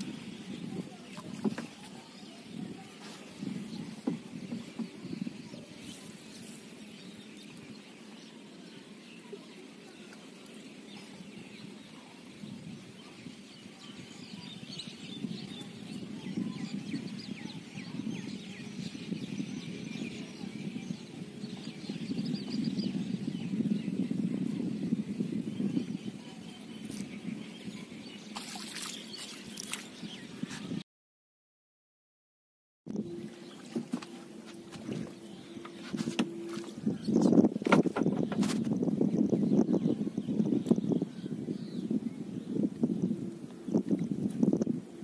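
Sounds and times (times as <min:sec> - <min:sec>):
birds chirping: 0:00.0 - 0:30.8, 0:32.9 - 0:45.0.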